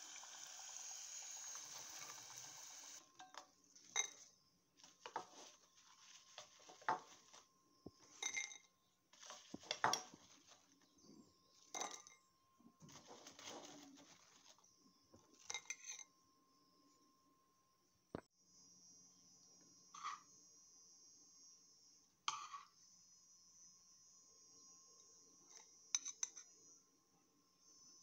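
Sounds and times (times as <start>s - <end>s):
food sizzling in hot oil: 0.0s - 3.0s.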